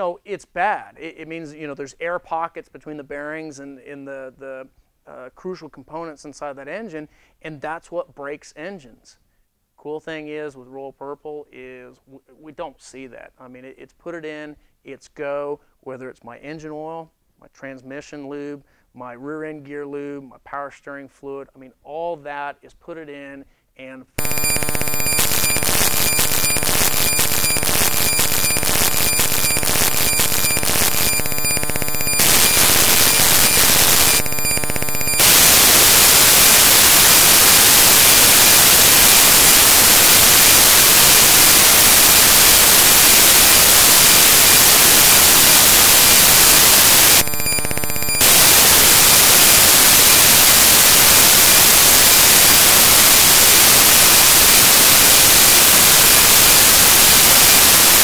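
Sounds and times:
harsh digital buzz with crackle: 24.2 - 58.0
loud static hiss: 24.2 - 58.0.

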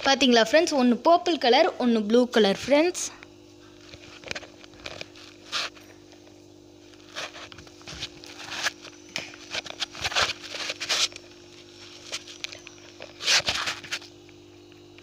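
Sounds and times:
steady low hum: 0.0 - 15.0
rustling and scraping handling noises: 3.6 - 14.1.

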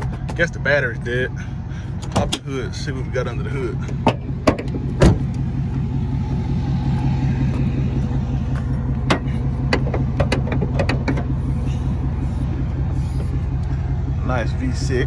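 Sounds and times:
engine idling: 0.0 - 15.0
car hood clicks and knocks: 4.0 - 5.3, 9.1 - 11.3.

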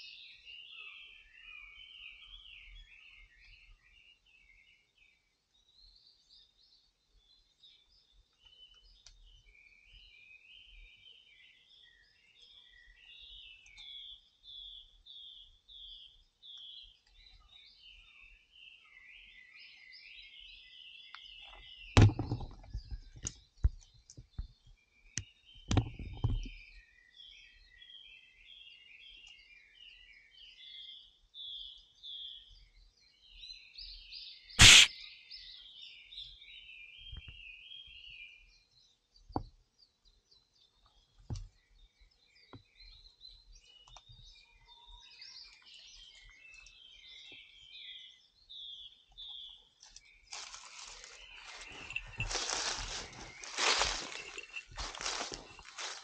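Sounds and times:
small birds chirping: 0.0 - 56.0
sharp knocks: 22.0 - 22.7.

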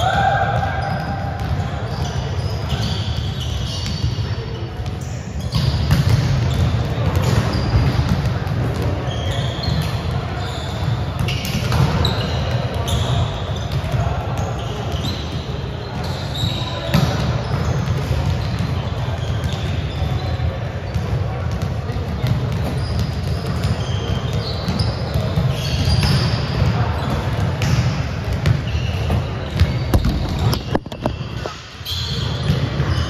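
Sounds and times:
players' voices echoing: 0.0 - 30.5
sneakers squeaking: 0.0 - 33.0
volleyballs smacking and bouncing: 5.6 - 10.2, 11.1 - 12.9, 16.9 - 18.8, 21.0 - 31.5.

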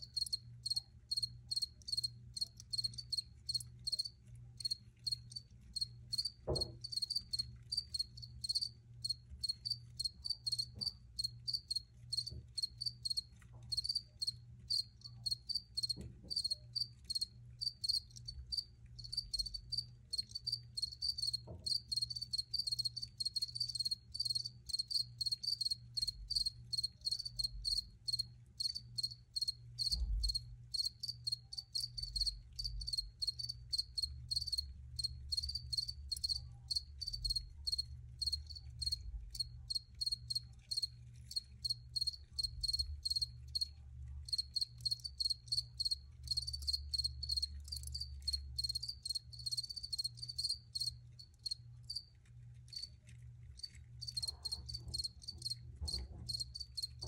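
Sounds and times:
low steady hum: 0.0 - 57.0
crickets chirping: 0.1 - 5.2, 13.8 - 43.3, 44.3 - 52.0.

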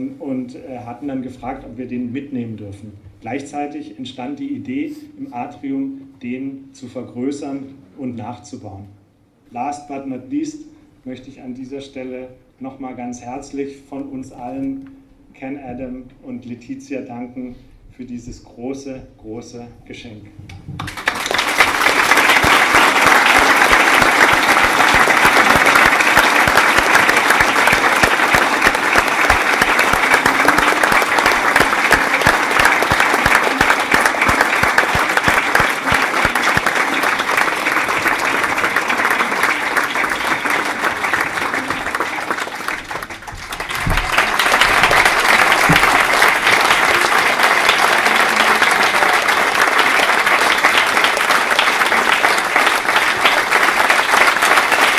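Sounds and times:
large audience applauding: 20.8 - 54.9.

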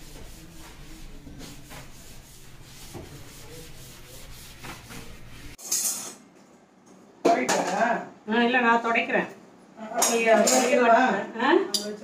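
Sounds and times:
brush scrubbing a kitchen surface: 0.0 - 5.6.

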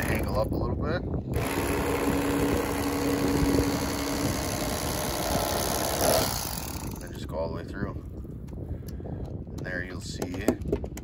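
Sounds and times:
electric knife motor buzzing: 1.4 - 7.0
steady hum: 1.4 - 7.2.

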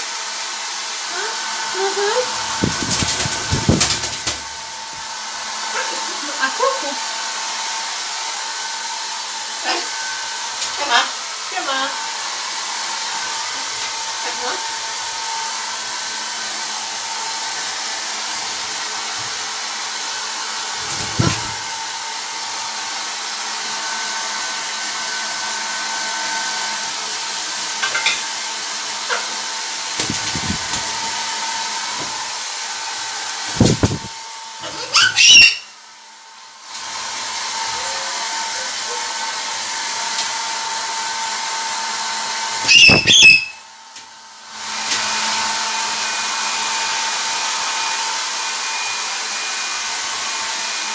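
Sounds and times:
hair dryer blowing: 0.0 - 50.9
parrot squawking: 34.6 - 35.8, 42.6 - 43.6.

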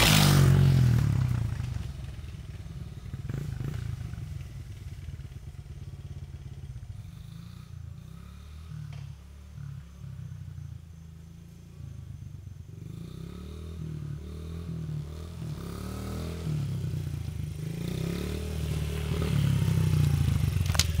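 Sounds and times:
dirt bike engine revving: 0.0 - 1.9, 12.7 - 21.0.

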